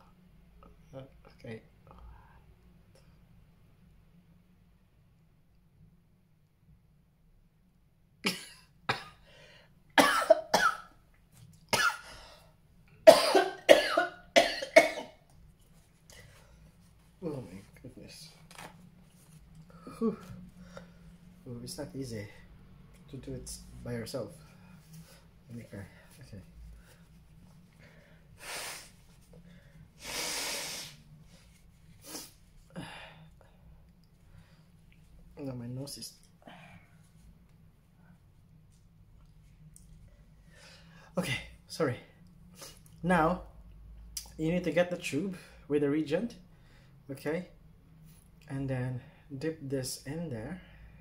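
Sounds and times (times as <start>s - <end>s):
man coughing: 8.2s - 9.2s, 10.0s - 10.9s, 13.1s - 15.2s
man blowing his nose: 28.4s - 29.0s, 30.0s - 32.4s.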